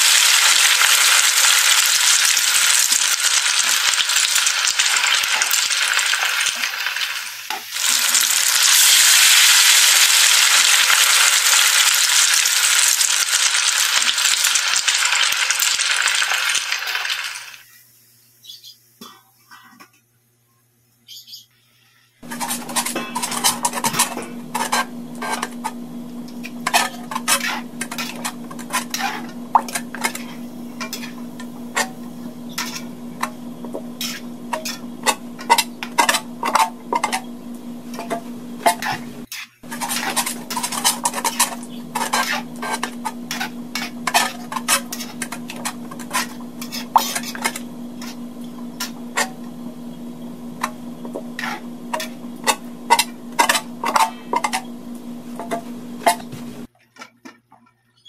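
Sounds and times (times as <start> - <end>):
metal ladle scraping a wok: 22.2 - 25.8, 26.6 - 33.3, 34.0 - 37.3, 38.0 - 49.4, 50.6 - 54.7
steady low hum: 22.2 - 56.7.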